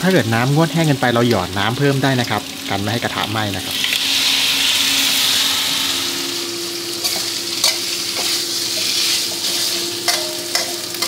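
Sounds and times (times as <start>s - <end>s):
meat sizzling in a wok: 0.0s - 11.0s
metal spatula scraping a wok: 4.1s - 11.0s.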